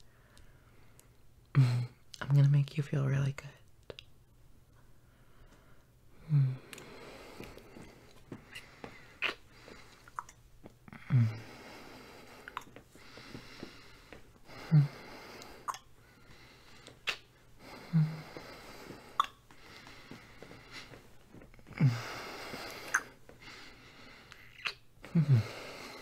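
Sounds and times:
man humming mm: 0:06.2 - 0:06.8, 0:10.9 - 0:11.5, 0:14.5 - 0:15.2, 0:17.8 - 0:18.4, 0:24.6 - 0:26.0
wet kissing lip smacks: 0:09.2 - 0:09.4, 0:17.0 - 0:17.3, 0:19.2 - 0:19.4, 0:22.9 - 0:23.1, 0:24.3 - 0:24.8.

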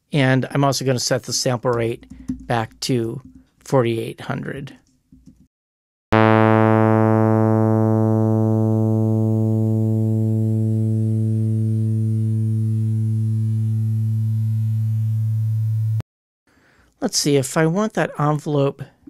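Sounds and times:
buzzy synthesized tone: 0:06.2 - 0:16.0.

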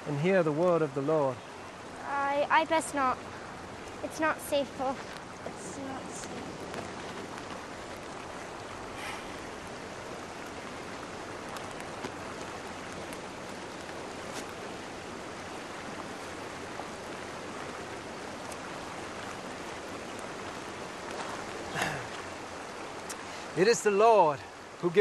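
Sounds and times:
stream rushing over rocks: 0:00.0 - 0:25.0
faint ticks: 0:18.4 - 0:19.4, 0:23.0 - 0:23.4.

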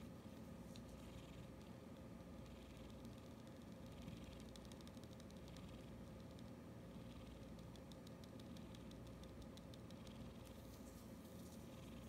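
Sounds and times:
soft high ticks: 0:01.5 - 0:06.6, 0:07.3 - 0:10.6.

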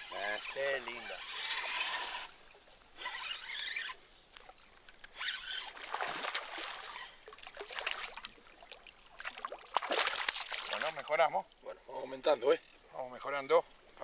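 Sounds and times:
fish splashing in water: 0:05.3 - 0:11.2.

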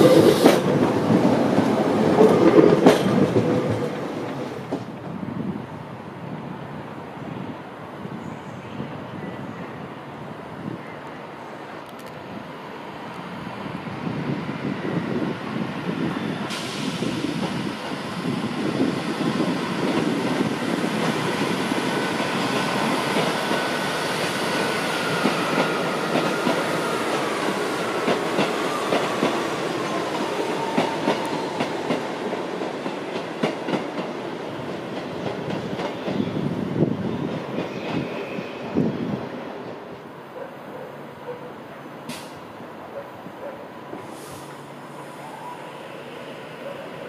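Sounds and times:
train wheels clicking over rail joints: 0:00.0 - 0:05.0.

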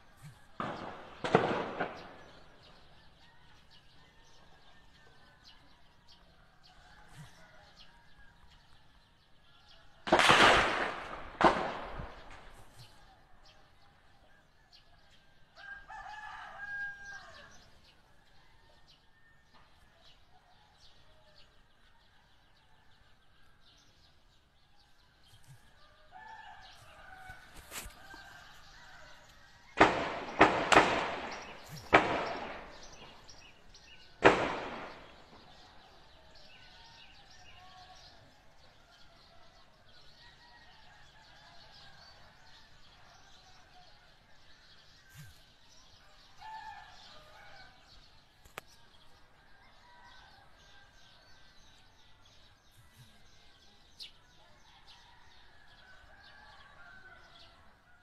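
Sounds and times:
echoing gunshots: 0:00.0 - 0:04.3, 0:10.0 - 0:13.0, 0:28.1 - 0:36.6
rooster crowing: 0:15.6 - 0:17.7.

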